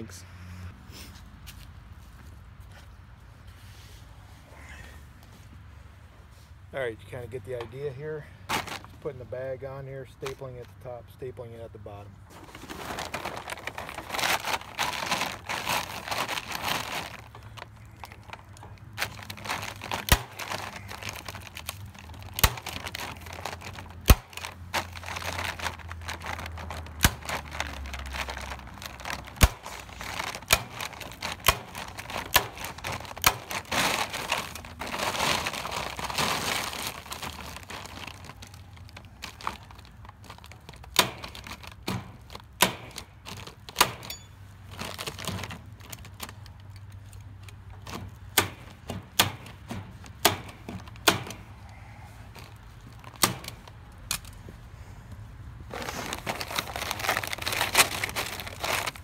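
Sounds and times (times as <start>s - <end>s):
feed bag crinkling: 7.7s - 9.2s, 12.2s - 48.6s, 49.9s - 54.4s, 55.6s - 59.0s.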